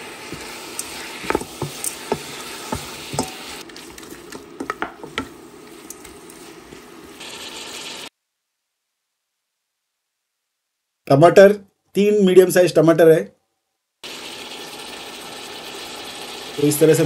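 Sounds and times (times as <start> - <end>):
meat and onions sizzling in oil: 0.0 - 8.1, 14.0 - 17.0
wooden spatula scraping a pot: 0.2 - 3.6.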